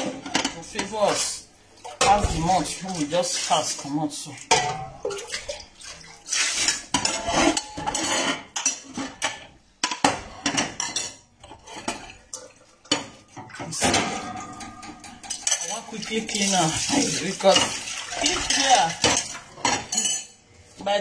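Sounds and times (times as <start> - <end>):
dishes clattering in a steel sink: 0.0 - 20.9.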